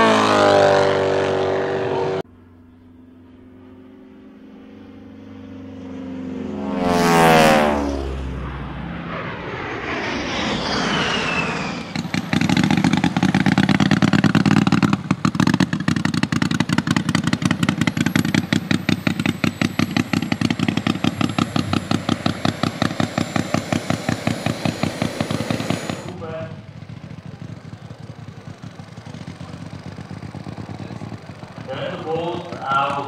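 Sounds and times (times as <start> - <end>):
model plane engine running: 0.0 - 33.0
whooshing sound effects: 7.3 - 12.5.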